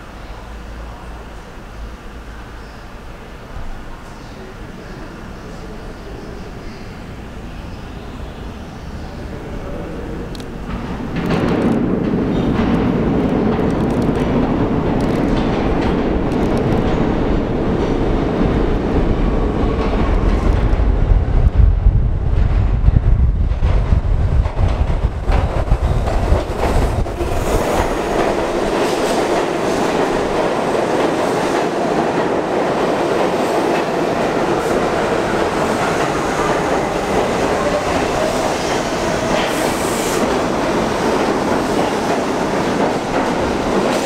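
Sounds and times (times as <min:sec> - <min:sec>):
deep low train rumble: 0:00.0 - 0:44.0
steel wheels on rail: 0:10.0 - 0:21.1, 0:24.0 - 0:44.0
clicks over rail joints: 0:10.3 - 0:17.1.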